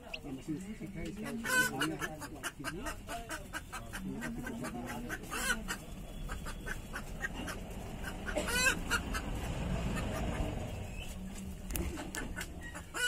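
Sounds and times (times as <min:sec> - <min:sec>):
chickens clucking: 0:00.0 - 0:13.0
loud chicken calls: 0:01.3 - 0:10.8.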